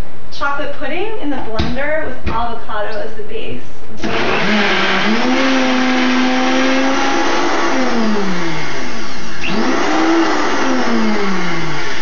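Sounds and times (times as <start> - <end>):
blender motor whining: 4.0 - 12.0.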